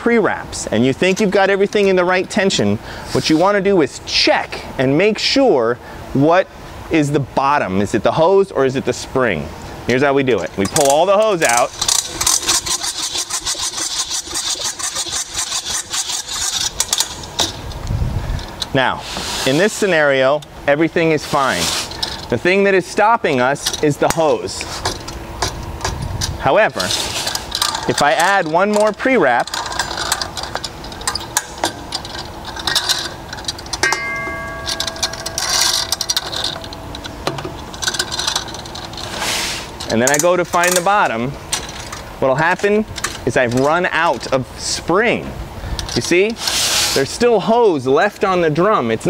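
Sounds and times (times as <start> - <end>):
hose reel ratchet clicking: 10.6 - 18.6, 23.4 - 42.1
metallic ringing tone: 33.7 - 38.7.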